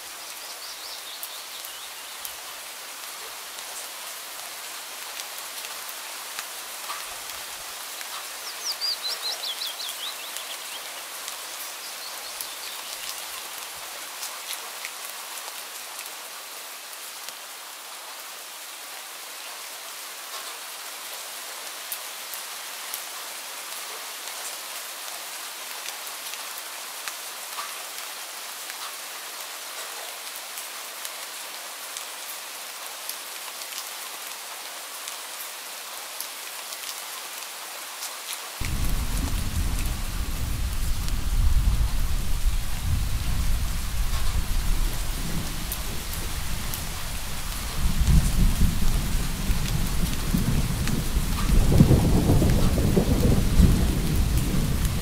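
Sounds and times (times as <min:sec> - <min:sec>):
steady rain falling: 0:00.0 - 0:55.0
rain drop ticks: 0:38.6 - 0:43.0, 0:43.7 - 0:55.0
distant thunder rumbling: 0:38.6 - 0:55.0.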